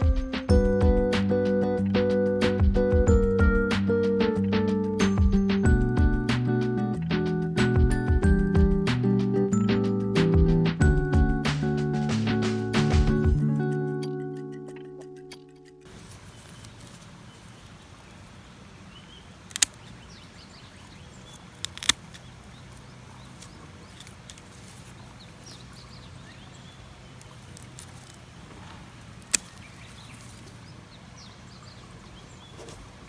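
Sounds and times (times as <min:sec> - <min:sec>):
pruning shears snipping: 0:14.5 - 0:17.1, 0:19.4 - 0:20.0, 0:21.2 - 0:25.0, 0:27.1 - 0:30.6.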